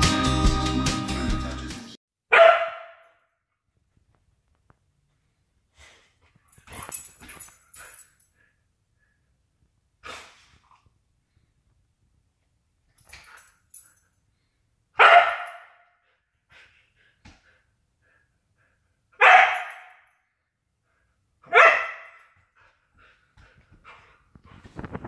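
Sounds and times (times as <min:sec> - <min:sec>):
dog barking: 0:02.3 - 0:03.2, 0:15.0 - 0:15.9, 0:19.2 - 0:20.0, 0:21.5 - 0:22.3.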